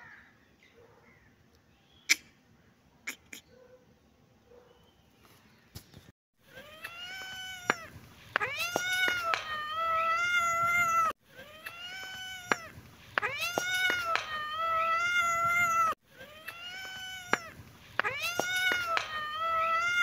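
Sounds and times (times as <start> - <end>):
cat meowing: 6.6 - 20.0.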